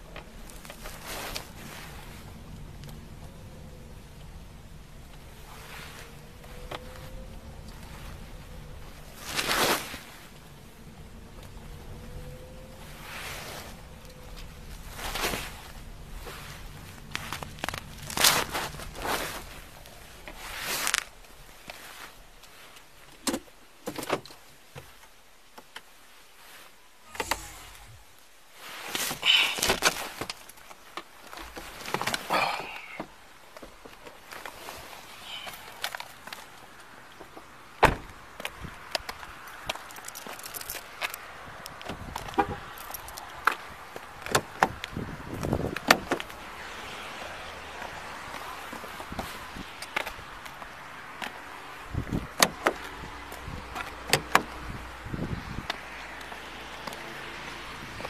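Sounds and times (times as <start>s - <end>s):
rustling and clatter: 0.0s - 3.3s, 5.0s - 28.0s, 28.6s - 46.4s
clothing and gear rustling: 0.0s - 23.3s, 24.4s - 37.4s, 38.0s - 57.1s
steady low hiss: 0.0s - 56.8s.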